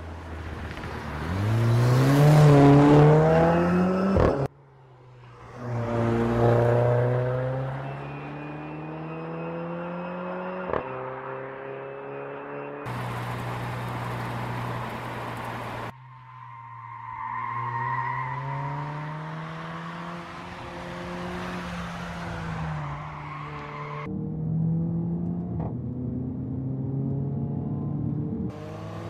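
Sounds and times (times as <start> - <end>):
car engine revving: 12.9 - 15.9.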